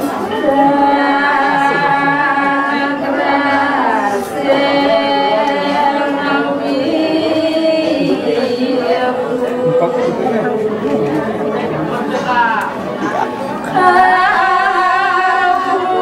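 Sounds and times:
voices chanting long notes: 0:00.0 - 0:16.0.

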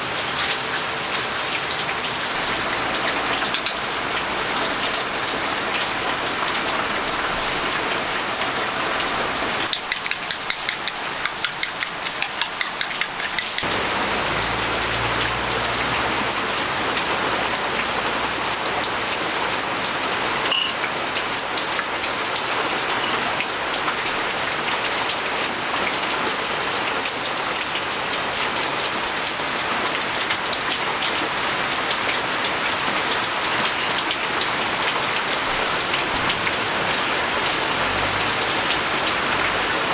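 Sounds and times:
steady rain hiss: 0:00.0 - 0:39.9
light regular ticks: 0:09.6 - 0:13.7.

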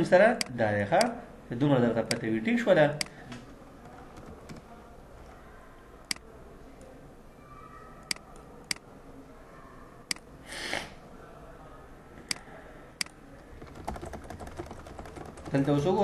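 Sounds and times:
computer mouse clicking: 0:03.8 - 0:04.7
short breathy hiss: 0:10.4 - 0:11.0.

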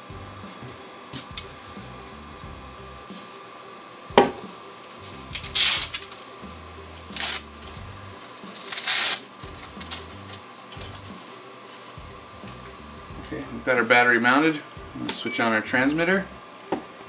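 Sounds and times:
hook-and-loop strap ripping: 0:05.3 - 0:06.2, 0:07.1 - 0:07.5, 0:08.6 - 0:10.9.

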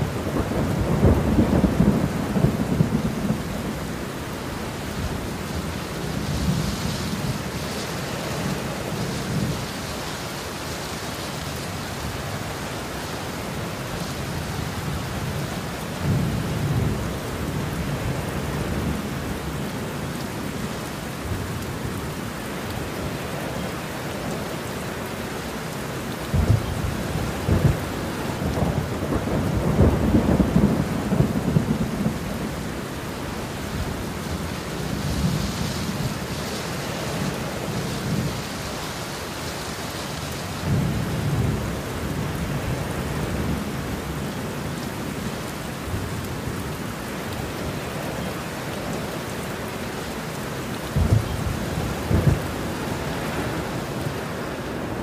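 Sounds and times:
thunder rumbling and cracking: 0:00.0 - 0:03.9, 0:26.3 - 0:32.7, 0:50.9 - 0:55.0
heavy rain falling: 0:00.0 - 0:55.0.

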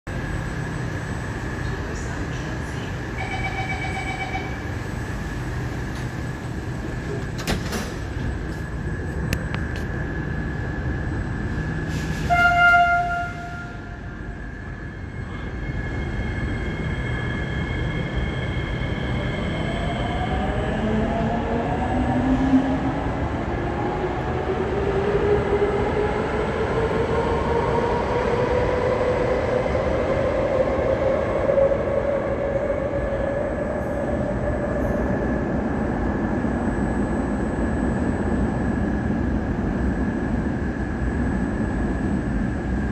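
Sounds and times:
train horn blast: 0:12.2 - 0:14.0.

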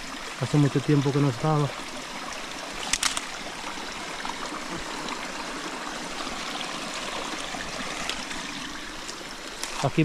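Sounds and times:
stream water rushing: 0:00.0 - 0:10.0
sharp clicks: 0:02.8 - 0:03.3.

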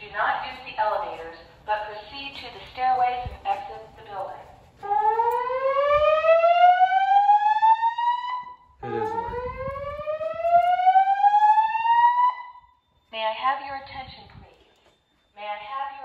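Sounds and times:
fire alarm whoop tone: 0:04.9 - 0:13.1.

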